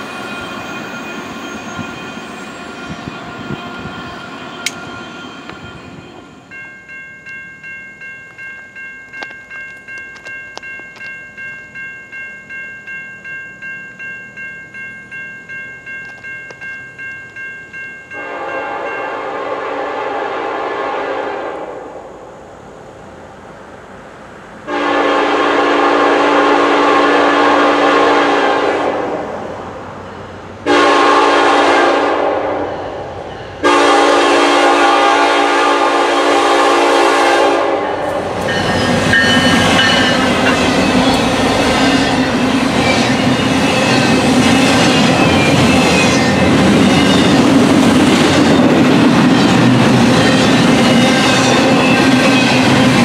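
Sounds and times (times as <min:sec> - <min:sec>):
train rumbling past: 0:00.0 - 0:53.0
locomotive air horn blasts: 0:18.2 - 0:21.9, 0:24.7 - 0:29.2, 0:30.7 - 0:32.8, 0:33.6 - 0:40.6
wheels clacking over rail joints: 0:38.0 - 0:53.0.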